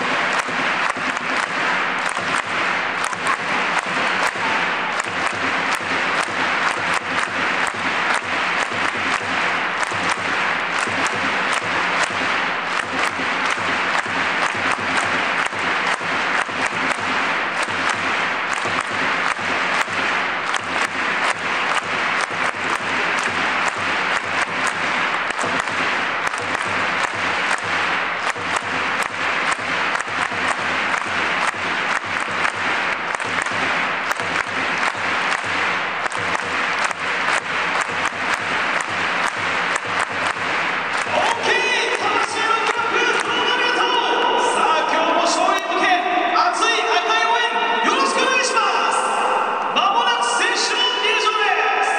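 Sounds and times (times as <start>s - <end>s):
nearby individual claps: 0.0s - 44.6s
stadium crowd clapping: 0.0s - 51.9s.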